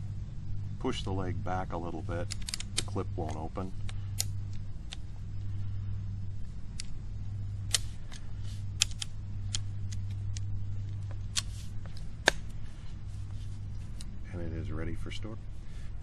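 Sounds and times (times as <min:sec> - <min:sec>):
steady low rumble: 0:00.0 - 0:16.0
tripod leg clips clicking: 0:02.2 - 0:05.0.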